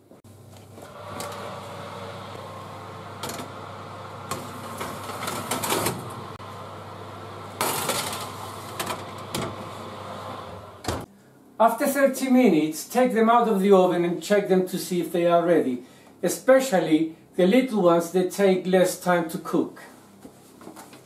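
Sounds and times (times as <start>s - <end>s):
steady hum: 0.3s - 11.6s
metal trays scraping oven racks: 4.3s - 6.4s.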